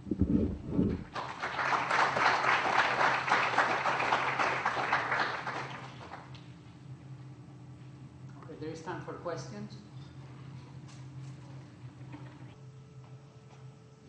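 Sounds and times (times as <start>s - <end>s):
audience applauding: 1.0s - 6.3s.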